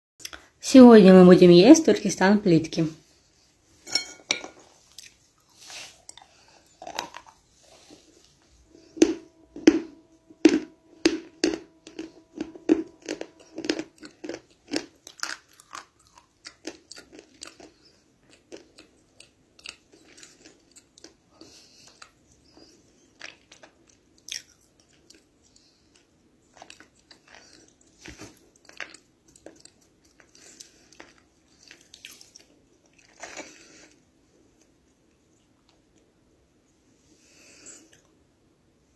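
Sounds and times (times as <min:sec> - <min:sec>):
crunchy biting and chewing: 0:04.9 - 0:08.0, 0:08.8 - 0:25.9.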